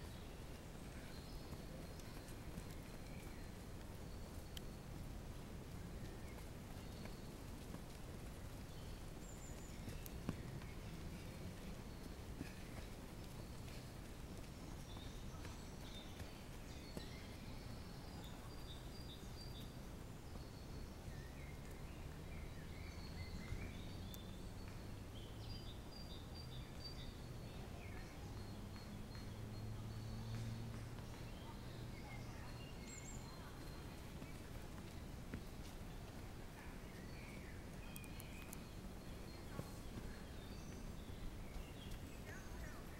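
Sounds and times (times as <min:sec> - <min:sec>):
footsteps on dirt trail: 0:00.0 - 0:17.8, 0:32.8 - 0:36.2
birds singing and chirping: 0:00.0 - 0:42.9
faint low hum: 0:00.0 - 0:42.9.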